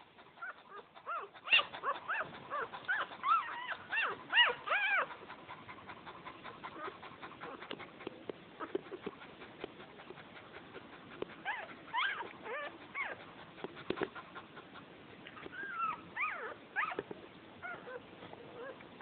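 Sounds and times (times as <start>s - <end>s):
puppies whimpering: 0.3s - 8.0s, 10.7s - 14.4s, 15.3s - 17.0s, 17.6s - 19.0s.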